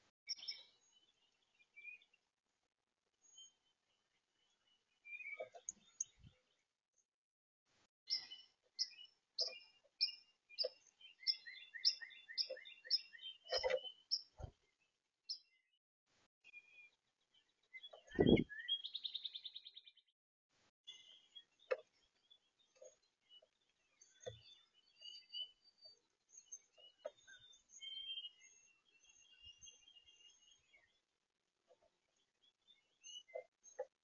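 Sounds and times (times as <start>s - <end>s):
songbirds chirping and singing: 0.0s - 6.8s, 8.1s - 15.8s, 16.4s - 20.1s, 20.9s - 34.0s
thin high bird song: 0.0s - 7.1s, 8.1s - 15.8s, 16.4s - 20.1s, 20.8s - 34.0s.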